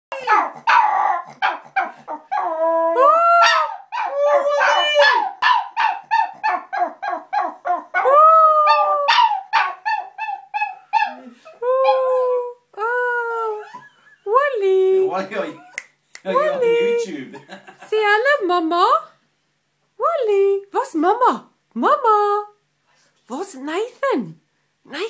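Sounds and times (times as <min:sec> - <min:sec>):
dog yipping: 0:00.1 - 0:02.5, 0:03.4 - 0:12.1
dog howling: 0:00.1 - 0:12.4.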